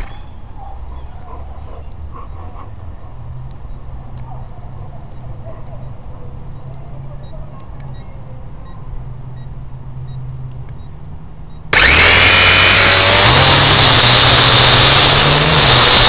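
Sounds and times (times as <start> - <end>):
drone propellers whining: 11.7 - 16.0.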